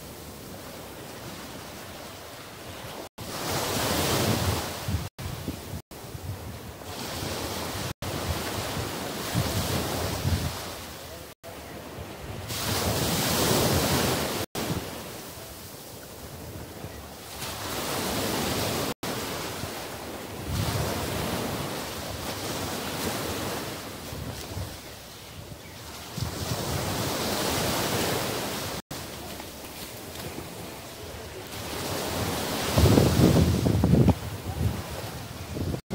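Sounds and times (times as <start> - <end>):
waves breaking on a beach: 0.0 - 35.9
wind buffeting microphone: 3.4 - 10.9, 20.2 - 28.7, 29.5 - 35.9.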